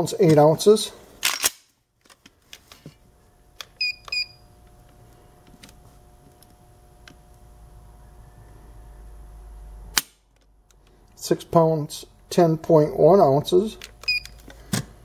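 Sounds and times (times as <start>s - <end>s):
digital gauge beeps: 3.8s - 4.5s, 14.0s - 14.4s.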